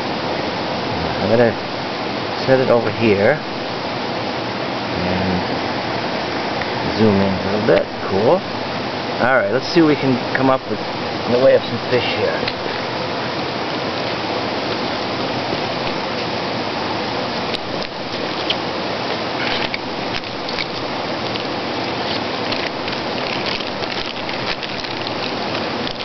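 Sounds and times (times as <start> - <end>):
steady rushing hiss: 0.0 - 26.0
faint clicks and rustles: 17.5 - 26.0.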